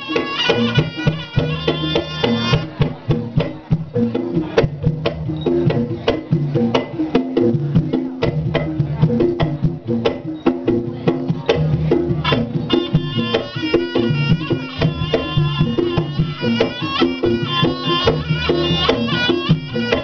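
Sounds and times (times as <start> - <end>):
shrill reed pipe melody: 0.0 - 2.8, 12.2 - 20.0
gongs and metallophones: 0.0 - 20.0
hand drums beating: 0.0 - 20.0.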